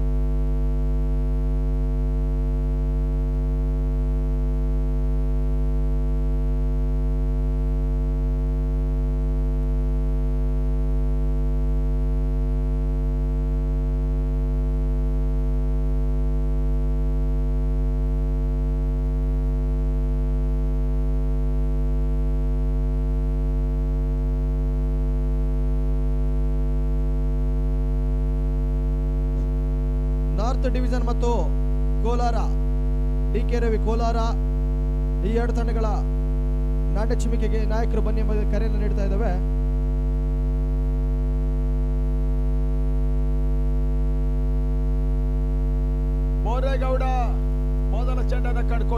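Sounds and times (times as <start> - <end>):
electrical mains hum: 20.6 - 48.9.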